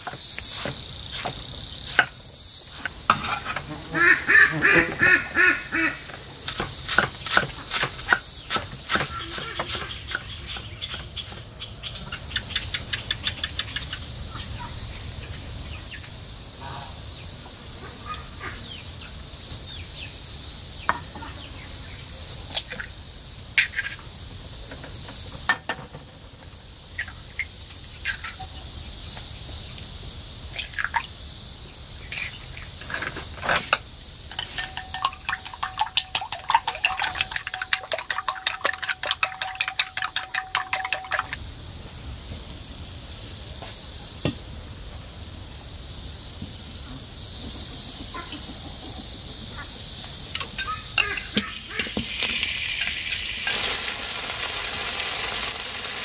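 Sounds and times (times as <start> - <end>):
insects humming: 0.0 - 56.0
clinks and knocks of dishes: 32.9 - 41.4
chopsticks beating eggs in bowl: 34.4 - 41.4.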